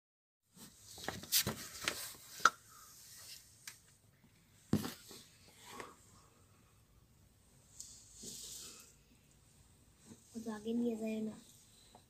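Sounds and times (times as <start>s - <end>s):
short rustles and scrapes: 0.5s - 3.6s, 7.7s - 9.0s.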